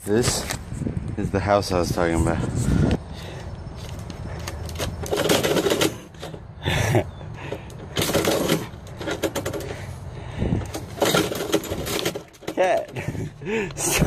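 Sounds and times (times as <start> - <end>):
mail slot flap clattering: 4.7 - 6.4, 7.9 - 9.8, 10.7 - 13.0.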